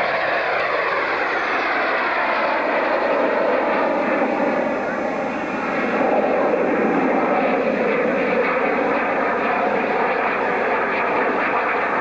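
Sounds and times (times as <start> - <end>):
small airplane engine overhead: 0.0 - 12.0.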